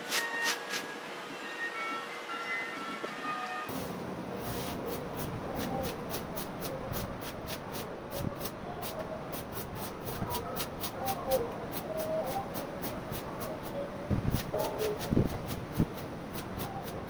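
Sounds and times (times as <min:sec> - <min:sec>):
broom sweeping water: 0:03.7 - 0:17.0.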